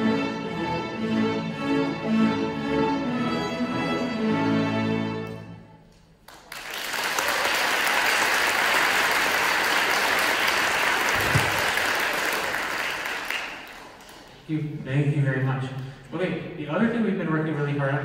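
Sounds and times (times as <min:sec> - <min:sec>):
string orchestra playing: 0:00.0 - 0:05.8
audience applauding: 0:06.2 - 0:14.5.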